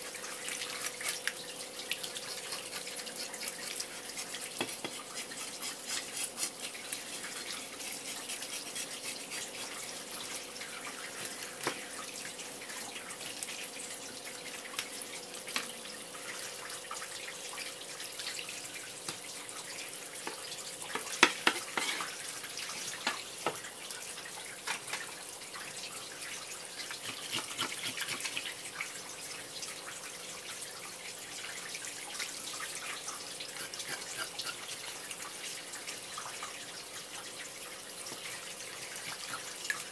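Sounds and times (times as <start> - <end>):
knife scraping fish scales: 0.4 - 1.3, 2.2 - 10.5, 20.9 - 22.3, 26.9 - 28.6, 33.4 - 34.9
tap water splashing: 4.4 - 5.4, 10.2 - 13.6, 14.6 - 15.8, 19.0 - 19.4, 20.2 - 23.8, 24.6 - 25.7, 38.1 - 39.9.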